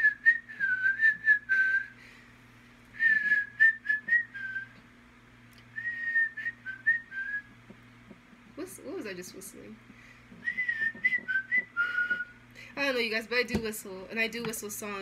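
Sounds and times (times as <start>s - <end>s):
woman whistling a tune: 0.0s - 2.0s, 3.0s - 4.8s, 5.7s - 7.5s, 10.4s - 12.4s.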